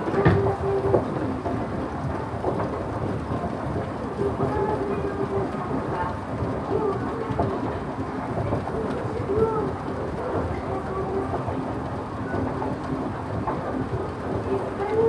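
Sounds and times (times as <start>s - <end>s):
escalator machinery rumbling: 0.0s - 15.0s
faint voices: 4.0s - 15.0s.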